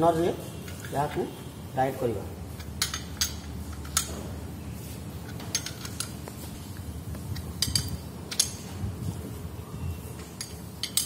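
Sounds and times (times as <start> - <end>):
spanner clinking against bolt: 2.6 - 4.2, 5.2 - 6.3, 7.2 - 8.7, 10.4 - 11.0.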